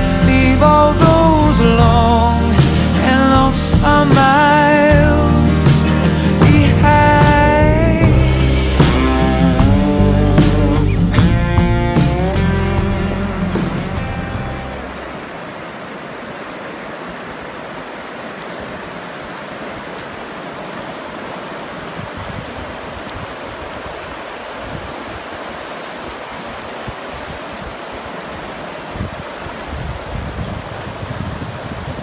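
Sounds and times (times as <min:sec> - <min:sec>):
river rushing over rocks: 0:00.0 - 0:32.0
wind buffeting the microphone: 0:21.6 - 0:32.0.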